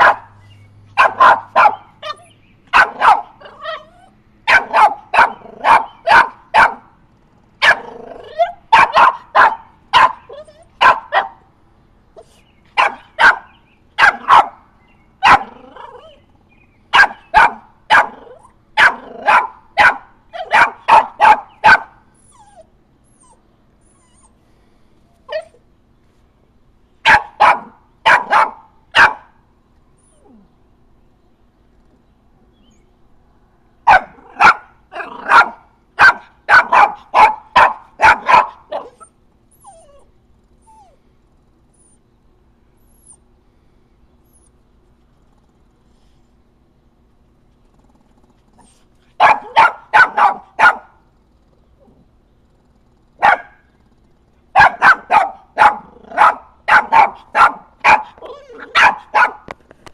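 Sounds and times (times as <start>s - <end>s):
puppy barking: 0.0s - 7.0s, 7.6s - 11.5s, 12.2s - 16.2s, 16.9s - 22.6s, 27.0s - 29.4s, 33.8s - 40.1s, 48.6s - 51.0s, 53.2s - 53.7s, 54.5s - 59.5s.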